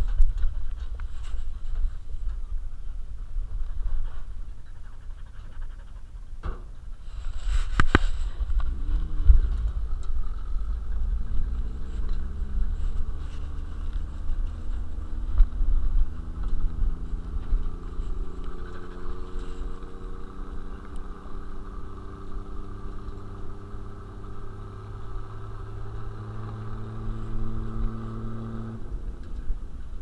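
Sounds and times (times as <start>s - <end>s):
wind and road rumble: 0.0s - 30.0s
car engine accelerating: 6.6s - 30.0s.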